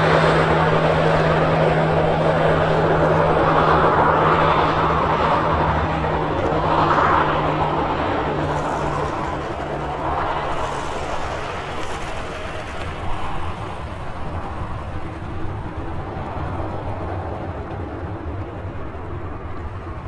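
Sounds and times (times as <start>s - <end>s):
jet engines running: 0.0s - 20.0s.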